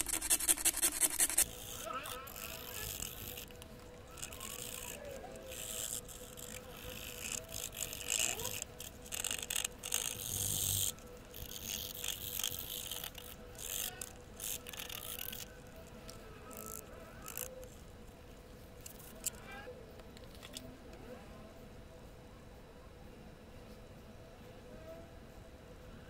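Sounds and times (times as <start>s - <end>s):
toothpick scraping coin: 0.0s - 17.8s.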